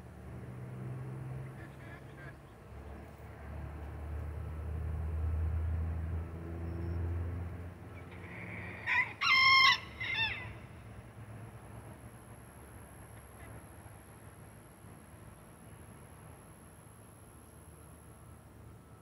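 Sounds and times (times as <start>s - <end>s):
rooster crowing: 8.2s - 10.6s.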